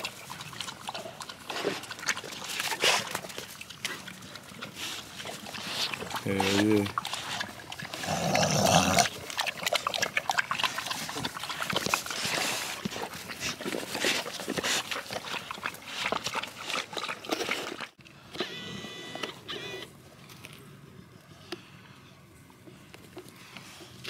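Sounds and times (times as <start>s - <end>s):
dog lapping water: 0.0s - 18.0s.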